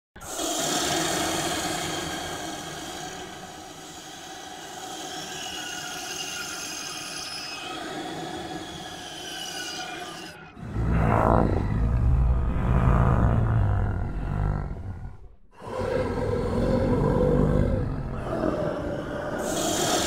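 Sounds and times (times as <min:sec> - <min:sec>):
cartoon monster snoring: 0:10.6 - 0:20.0.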